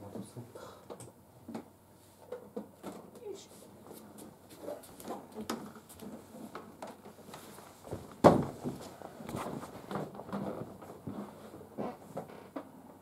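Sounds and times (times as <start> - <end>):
bare footsteps on floor mat: 7.3 - 11.4
loud thump: 8.2 - 8.8.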